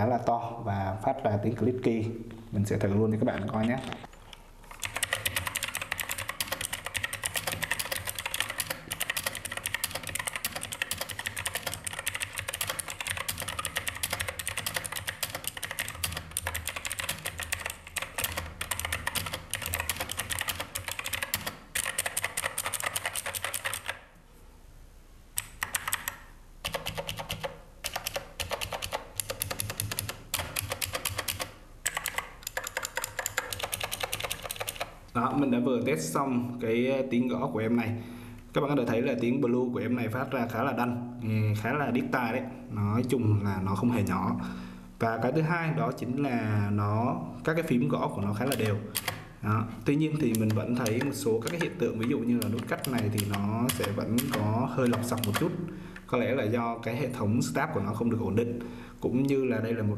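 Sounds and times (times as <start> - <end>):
mechanical keyboard typing: 4.7 - 24.1, 25.4 - 35.0, 48.3 - 49.3, 50.2 - 55.6.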